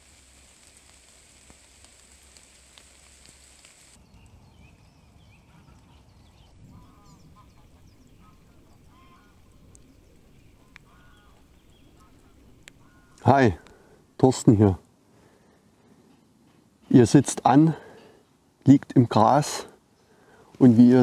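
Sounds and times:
rain hissing on leaves: 0.0 - 4.0
rain on lake water: 0.0 - 4.0
waterfowl honking: 6.7 - 9.6, 10.5 - 13.2.

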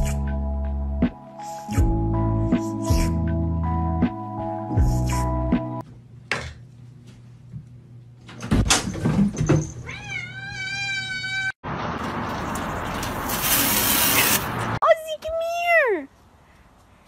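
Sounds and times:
cat meowing: 9.9 - 11.5.

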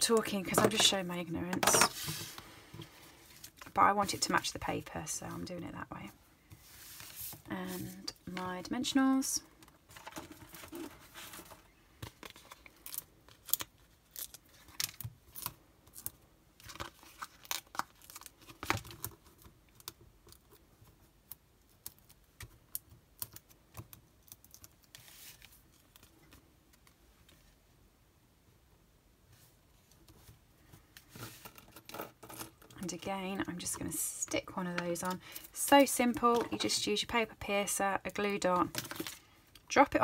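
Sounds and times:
paper rustling: 1.6 - 4.4, 6.6 - 8.1.

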